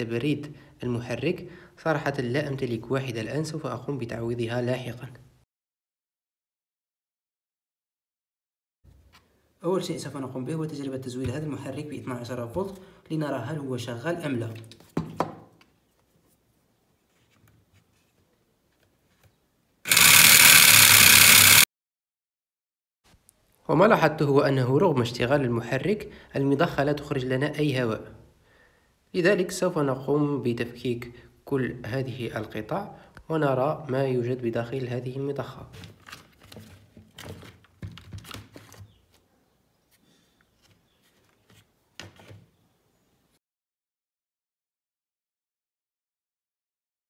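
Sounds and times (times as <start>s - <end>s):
compressor motor whirring: 19.9s - 21.7s.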